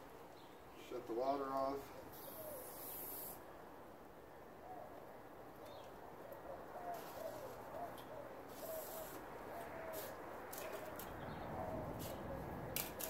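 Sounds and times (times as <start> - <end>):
bird cooing: 2.1 - 3.0, 4.6 - 5.1, 6.2 - 12.7.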